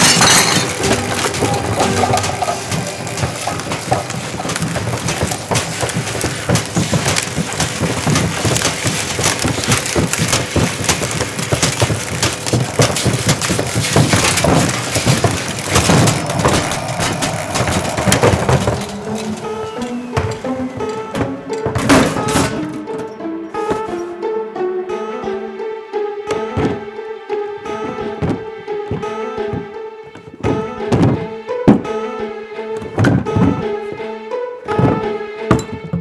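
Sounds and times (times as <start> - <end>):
crockery and wood breaking: 0.0 - 22.9
vacuum cleaner mower running: 0.6 - 20.9.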